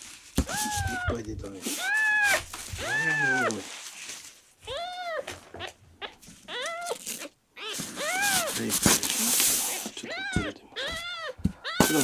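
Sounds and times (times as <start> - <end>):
kitten mewing: 0.4 - 1.2, 1.8 - 3.5, 4.7 - 8.6, 9.9 - 12.0.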